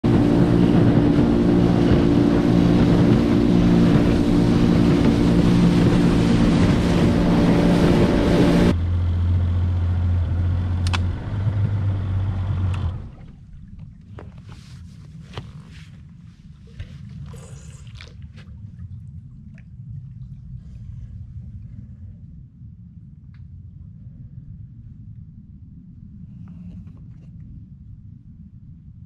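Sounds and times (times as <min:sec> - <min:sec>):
outboard motor drone: 0:00.0 - 0:14.7
water rushing along hull: 0:00.0 - 0:22.1.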